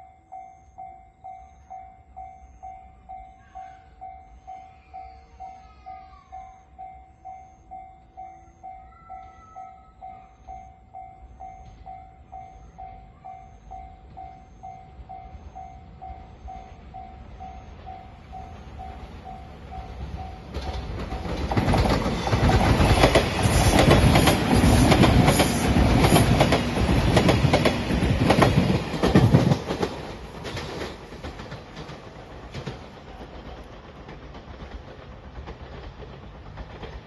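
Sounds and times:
train passing at speed: 0.0 - 37.0
wheels clattering over rail joints: 17.8 - 37.0.

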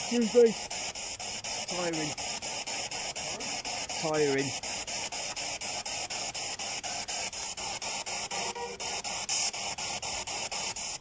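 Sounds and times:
radio static chopping: 0.0 - 11.0.

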